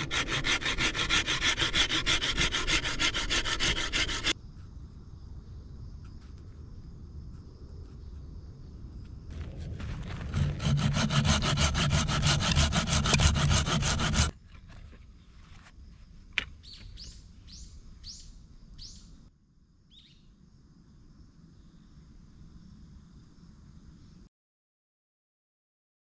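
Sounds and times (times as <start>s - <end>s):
saw cutting wood: 0.0s - 4.4s, 9.5s - 14.3s.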